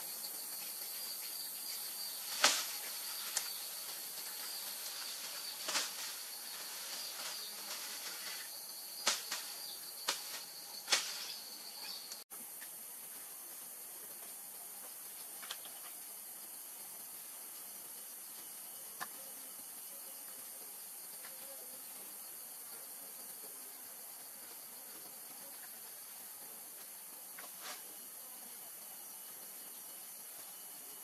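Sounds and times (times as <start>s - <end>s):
insect drone: 0.0s - 31.0s
dry grass thatch crackling: 1.7s - 11.5s.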